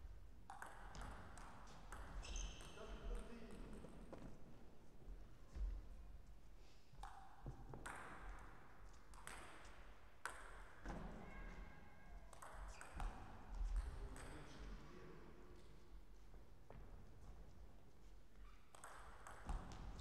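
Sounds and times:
table tennis balls bouncing: 0.5s - 3.9s, 7.0s - 8.3s, 9.1s - 11.1s, 12.3s - 14.4s, 18.7s - 20.0s
brief squeak: 2.2s - 2.8s.

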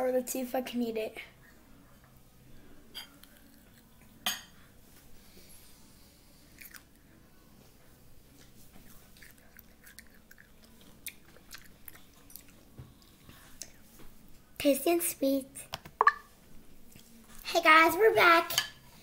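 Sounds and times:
child chewing with mouth open: 3.1s - 4.7s, 5.3s - 14.5s.

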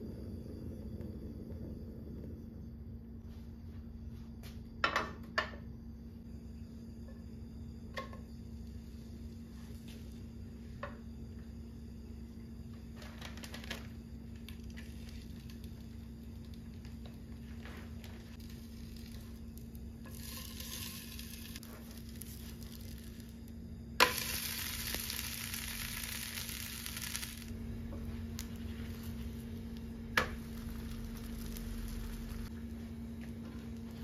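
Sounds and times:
flatbread sizzling in pan: 12.7s - 34.0s.

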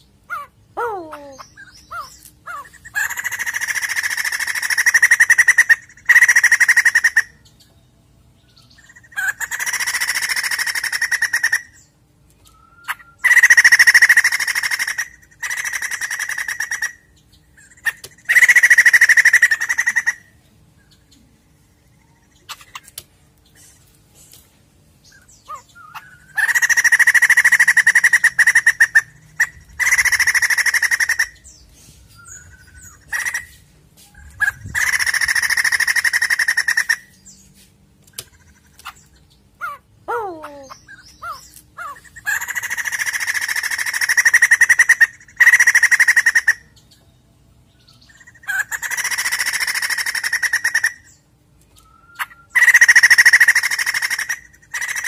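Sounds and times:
bird harsh chattering: 0.3s - 7.4s, 8.8s - 11.9s, 12.7s - 20.4s, 25.1s - 31.6s, 32.2s - 33.6s, 34.2s - 37.4s, 38.1s - 46.8s, 48.0s - 51.2s, 52.0s - 55.0s
bird whistled notes: 51.8s - 52.6s.

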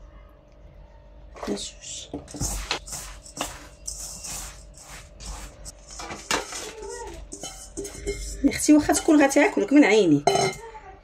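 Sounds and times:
hands scraping crumbs in a bowl: 2.3s - 9.6s.

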